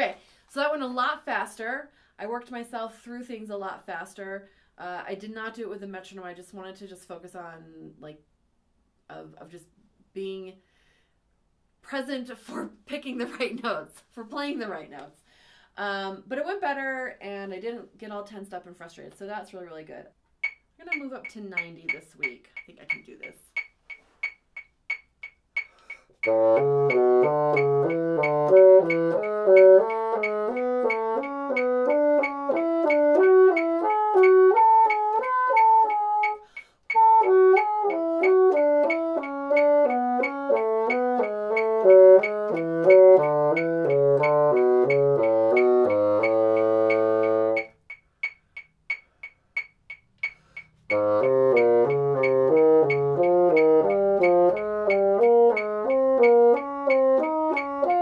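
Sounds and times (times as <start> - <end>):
metronome clicking: 20.4 - 58.0
bassoon playing scales: 26.2 - 47.8, 50.9 - 58.0.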